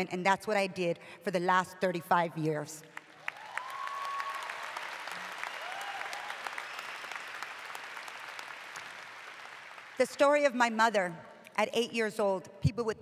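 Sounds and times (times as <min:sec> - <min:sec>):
large audience applauding: 0:03.0 - 0:10.0
faint cheers: 0:03.2 - 0:07.6.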